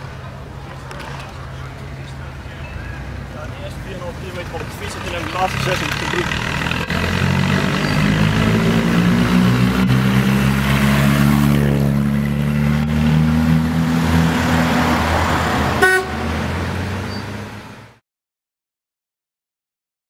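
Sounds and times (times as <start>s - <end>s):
car engine driving away: 0.0s - 18.0s
car horn toot: 15.8s - 16.4s.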